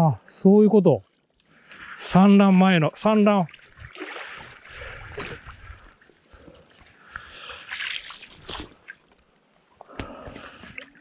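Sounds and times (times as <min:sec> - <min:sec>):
water lapping over gravel: 0:03.4 - 0:06.2, 0:07.4 - 0:09.4.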